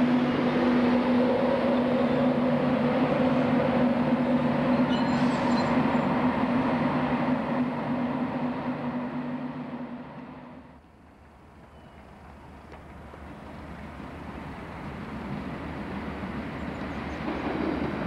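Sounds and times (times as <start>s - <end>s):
electric locomotive humming: 0.0s - 18.0s.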